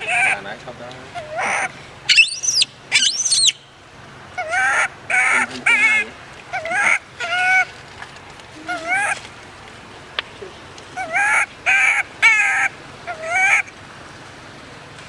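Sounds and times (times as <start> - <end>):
baby monkey crying: 0.0 - 0.5, 1.1 - 3.6, 4.4 - 7.7, 8.6 - 9.2, 11.0 - 13.7.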